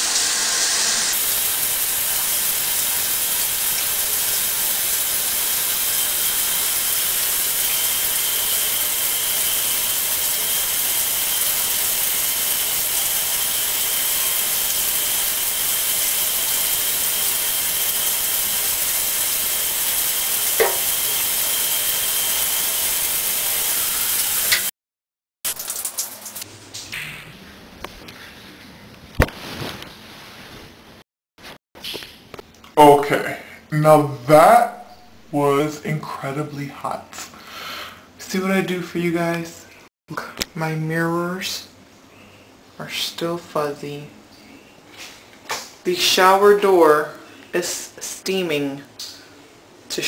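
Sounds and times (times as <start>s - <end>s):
shower water spraying: 0.0s - 24.7s, 25.5s - 27.0s.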